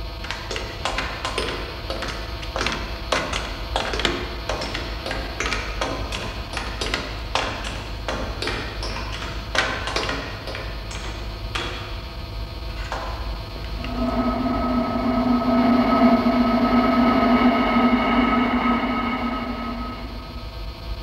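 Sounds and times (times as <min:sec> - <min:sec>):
low hum: 0:12.9 - 0:21.0.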